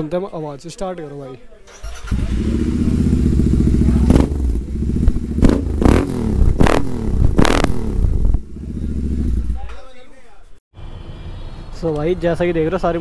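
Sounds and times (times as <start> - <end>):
motorcycle engine idling and revving: 1.8 - 9.7.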